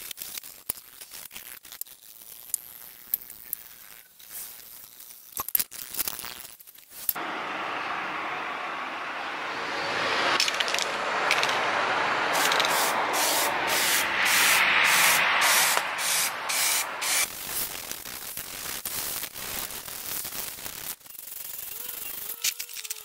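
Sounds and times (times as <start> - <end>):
aerosol spray can hissing: 12.3 - 17.3.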